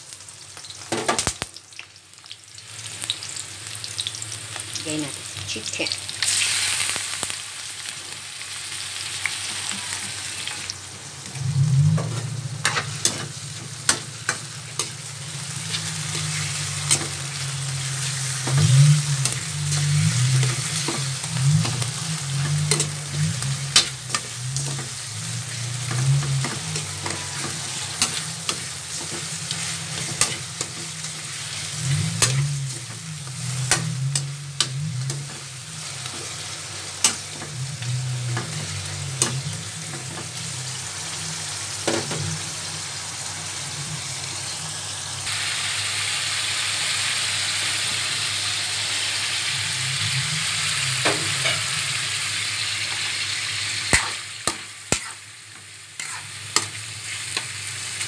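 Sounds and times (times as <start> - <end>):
chicken sizzling in oil: 0.0 - 58.0
low wavering hum: 9.4 - 45.3, 48.1 - 52.2
metal spoon scraping a wok: 11.3 - 40.8, 49.8 - 51.9, 53.9 - 55.3, 56.0 - 57.5.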